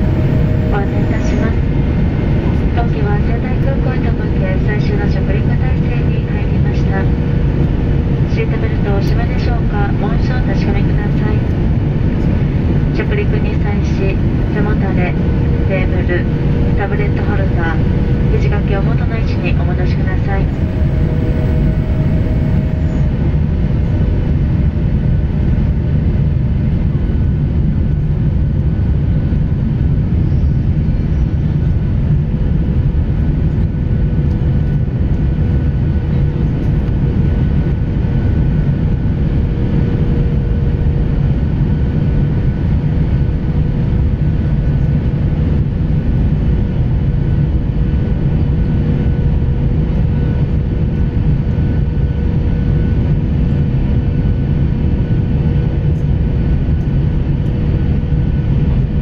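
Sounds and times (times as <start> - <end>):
steady whining tone: 0.0 - 26.6, 32.5 - 47.5
jet engine cabin roar: 0.0 - 59.0.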